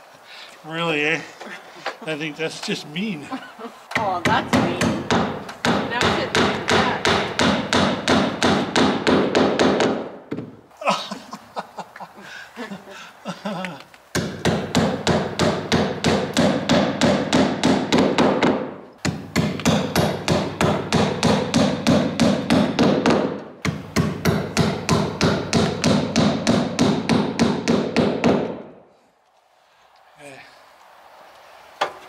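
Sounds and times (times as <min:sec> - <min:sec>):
power tool hammering: 0:03.9 - 0:10.5, 0:14.1 - 0:28.7.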